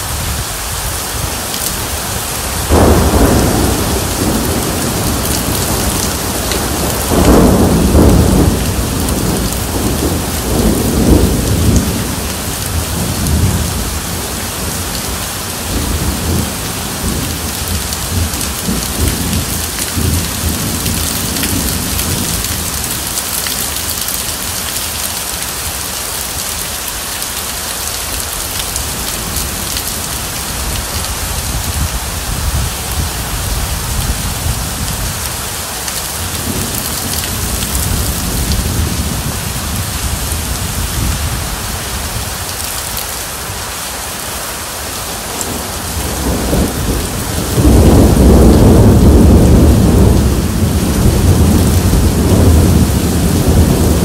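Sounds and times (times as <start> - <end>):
heavy rain splashing: 0.0 - 54.0
rolling thunder: 1.2 - 24.2, 36.0 - 42.5, 45.4 - 54.0.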